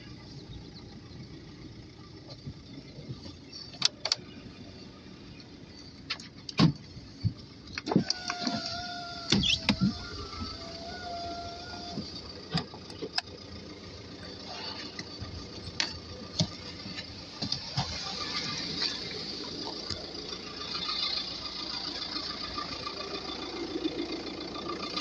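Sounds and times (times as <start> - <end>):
car door clicks and knocks: 6.1 - 6.8
small electric motor whining: 7.9 - 12.3.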